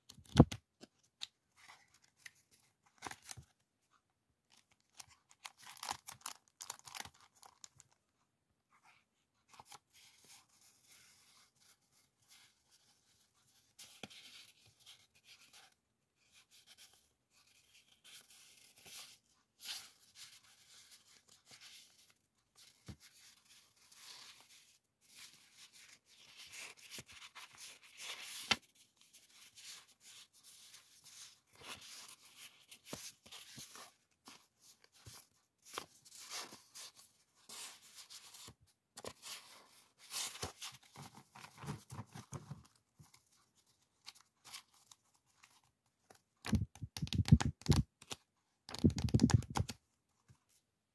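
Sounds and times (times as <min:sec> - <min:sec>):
paper sheet flick: 0:46.4 - 0:49.7.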